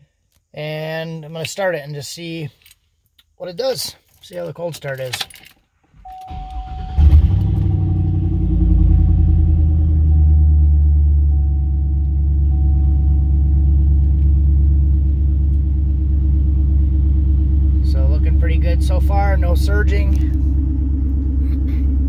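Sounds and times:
car engine starter cranking: 4.8 - 10.3
car engine fast idle: 6.2 - 22.0.

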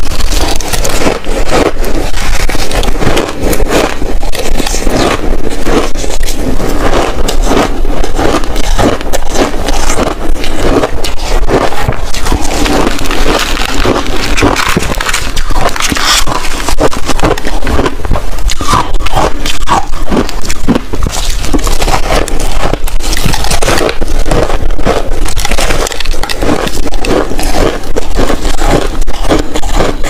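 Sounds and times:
shaved ice crunching: 0.0 - 30.0.

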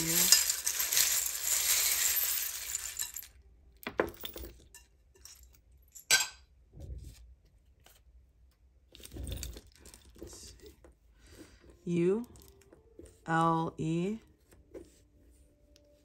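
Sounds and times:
small objects rattling together: 0.0 - 3.4
objects clattering onto a table: 3.8 - 4.6.

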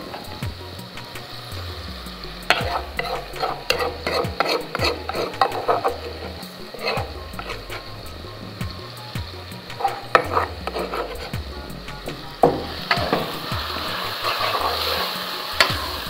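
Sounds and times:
vegetables sizzling in hot oil: 0.0 - 16.0
metal spoon scraping and knocking: 2.5 - 8.1, 9.7 - 11.3.

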